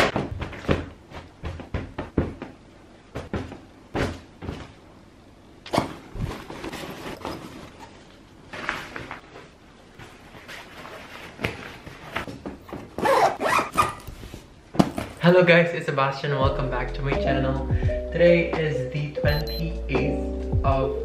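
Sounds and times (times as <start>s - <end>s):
fabric rustling: 5.8s - 15.2s.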